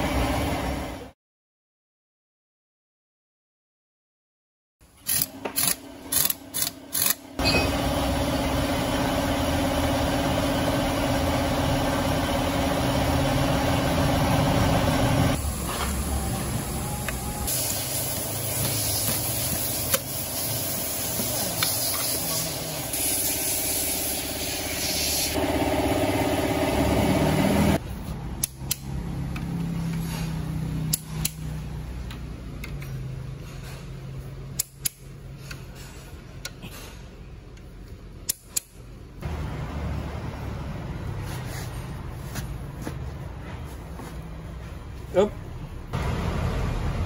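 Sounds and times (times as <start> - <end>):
torque wrench clicks: 5.0 - 7.2
machine running noise: 5.0 - 21.3, 22.4 - 27.8.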